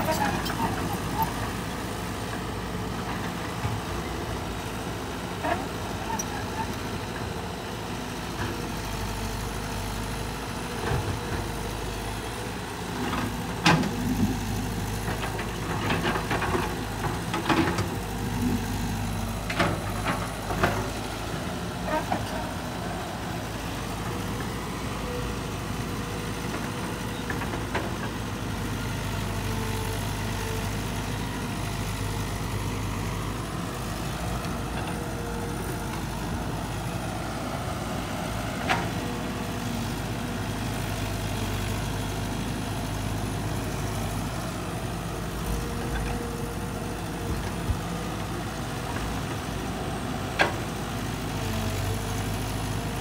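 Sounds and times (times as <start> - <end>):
excavator diesel engine running: 0.0 - 53.0.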